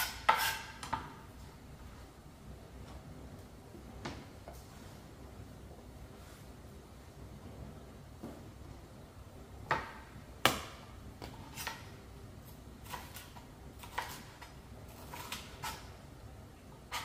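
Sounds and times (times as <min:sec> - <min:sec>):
knife chopping on cutting board: 0:00.0 - 0:01.1, 0:12.8 - 0:14.4.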